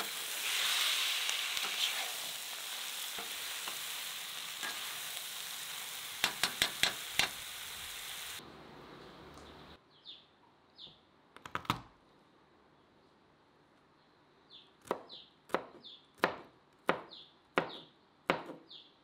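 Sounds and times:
knife chopping on cutting board: 17.6s - 18.6s.

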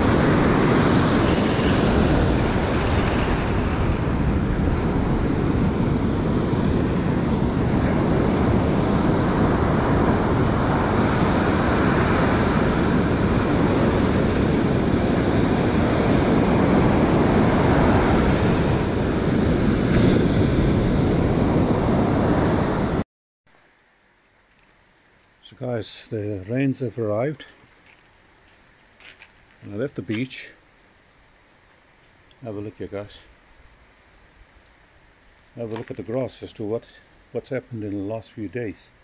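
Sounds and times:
ocean waves breaking on beach: 0.0s - 23.0s
wind buffeting microphone: 0.0s - 23.0s.

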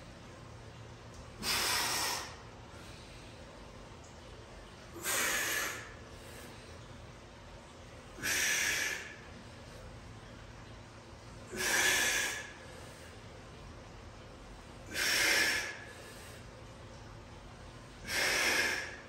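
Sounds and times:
man breathing forcefully: 1.4s - 2.4s, 5.0s - 6.5s, 8.2s - 9.3s, 11.5s - 13.2s, 14.9s - 16.5s, 18.0s - 19.0s.

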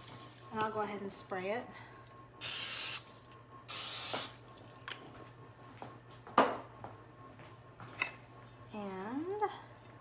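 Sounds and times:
aerosol spray hissing: 2.4s - 3.0s, 3.7s - 4.3s.

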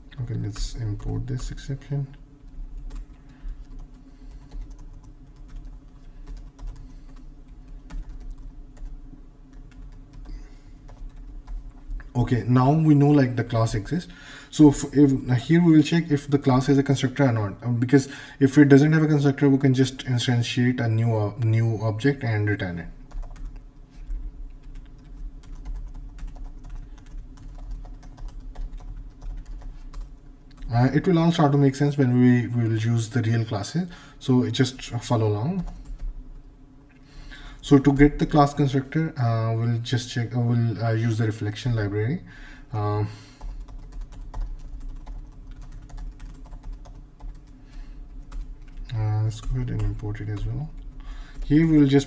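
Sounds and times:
low steady hum: 0.0s - 52.0s.

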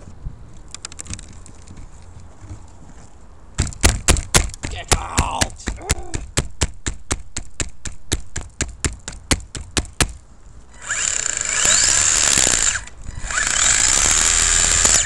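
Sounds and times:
motor fan clicking: 10.8s - 15.0s.

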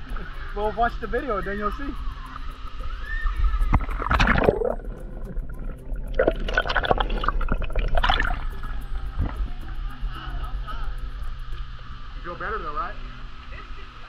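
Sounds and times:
water gurgling over microphone: 1.6s - 12.2s.

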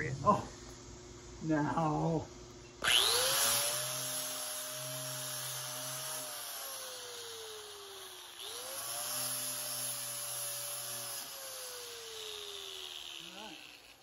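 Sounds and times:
angle grinder grinding wood: 2.8s - 14.0s.

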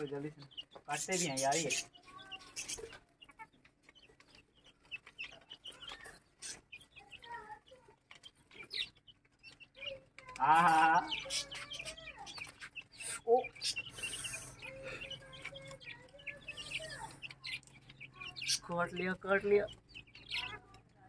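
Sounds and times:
chickens clucking: 0.0s - 21.0s
drawn-out bird call: 0.0s - 21.0s
faint calls: 0.0s - 21.0s.

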